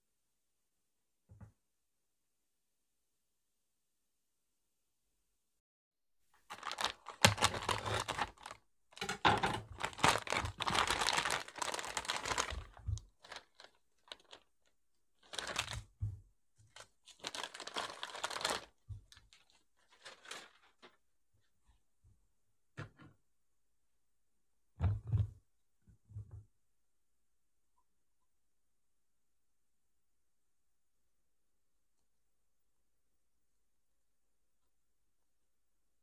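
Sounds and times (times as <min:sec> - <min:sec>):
plastic bag crinkling: 0:06.4 - 0:14.5, 0:15.2 - 0:15.9, 0:16.8 - 0:21.0.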